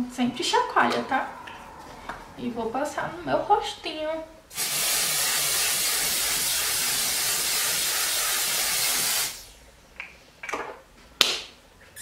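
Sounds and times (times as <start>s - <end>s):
spray hissing: 4.5s - 9.6s.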